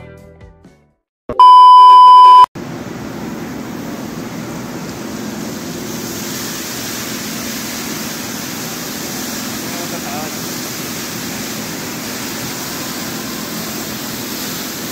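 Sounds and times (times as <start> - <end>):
loud electronic beep: 1.3 - 2.5
fountain water jet spraying: 2.9 - 14.9.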